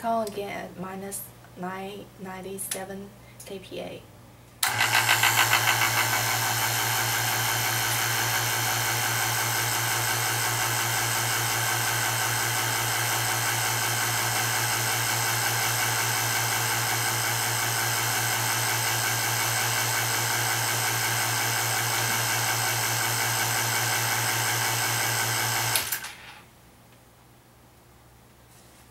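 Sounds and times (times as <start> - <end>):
vacuum pump humming: 4.6 - 26.2.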